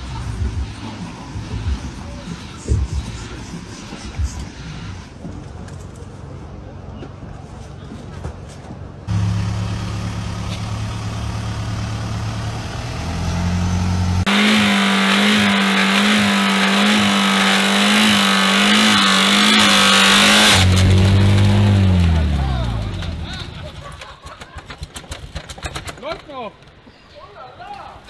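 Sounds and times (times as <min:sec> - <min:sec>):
car engine revving at high revs: 0:09.1 - 0:23.3.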